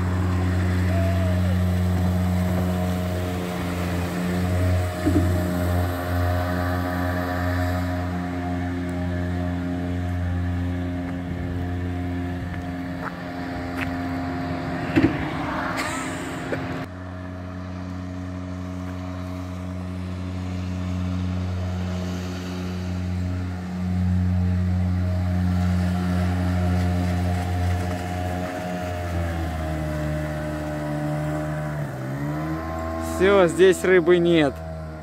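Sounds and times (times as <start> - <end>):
outboard motor running: 0.0 - 35.0.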